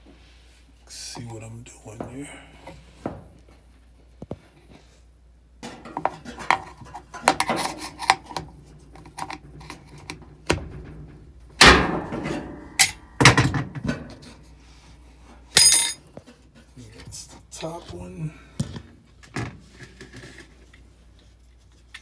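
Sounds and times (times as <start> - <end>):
tools clicking and scraping: 5.6 - 10.2, 15.6 - 16.4
thuds: 10.4 - 14.3.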